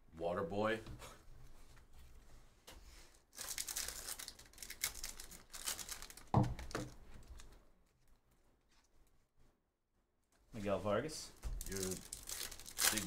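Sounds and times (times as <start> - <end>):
foil wrapper crinkling: 3.3 - 7.5, 11.6 - 13.0
cards being handled: 11.6 - 13.0.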